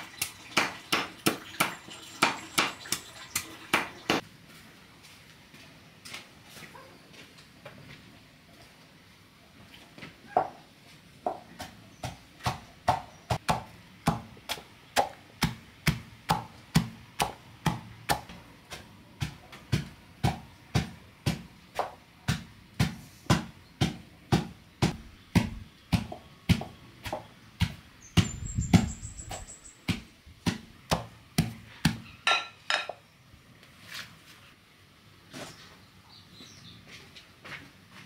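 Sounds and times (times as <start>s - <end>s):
pestle pounding in metal pot: 11.6s - 32.5s.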